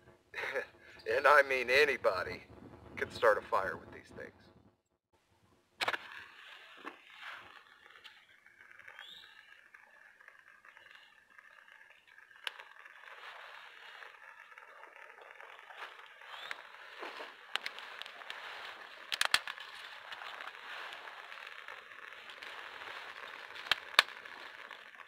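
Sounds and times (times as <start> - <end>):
fire hissing and crackling: 0.2 - 4.6, 5.8 - 25.0
sharp snaps of burning kindling: 6.9 - 25.0.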